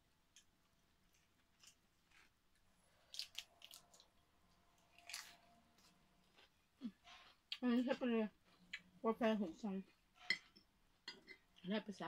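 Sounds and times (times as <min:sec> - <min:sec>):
crunching of someone eating: 0:01.0 - 0:07.6.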